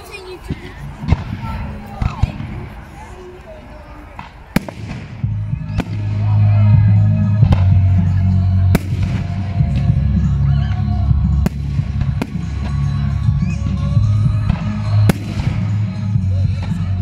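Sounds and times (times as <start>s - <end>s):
loud music with heavy bass: 5.2s - 17.0s.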